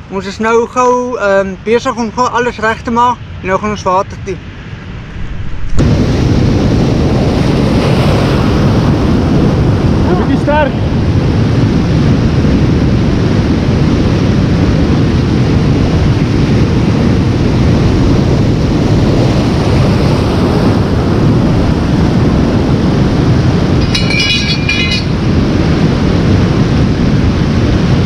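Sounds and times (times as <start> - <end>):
wind buffeting microphone: 3.2 - 28.0
surf washing over rocky shore: 4.2 - 12.6.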